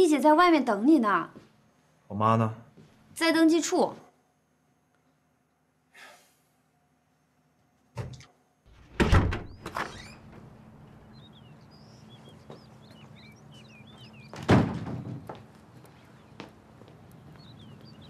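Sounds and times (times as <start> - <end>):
heavy wooden doors thudding shut: 8.0 - 10.5, 14.2 - 15.4
small birds chirping: 9.4 - 18.0.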